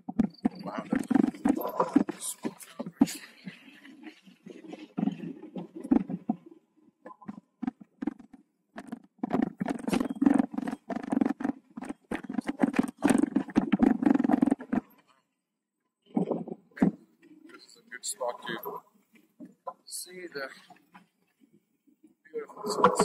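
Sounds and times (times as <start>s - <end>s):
mountain bike rattling on rocky trail: 0.0s - 6.5s, 7.2s - 15.1s.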